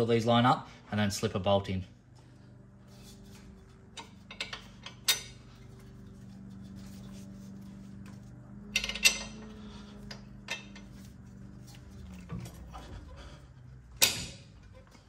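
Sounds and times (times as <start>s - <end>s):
steady low hum: 0.0s - 15.0s
metal bolts clinking: 3.9s - 6.0s, 8.6s - 12.9s, 14.0s - 14.9s.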